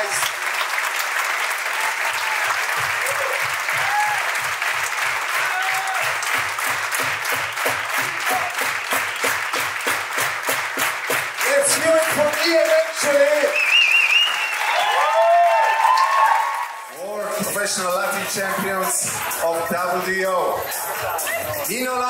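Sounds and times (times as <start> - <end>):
audience applauding: 0.0 - 22.0
music with thumping beat: 17.4 - 22.0.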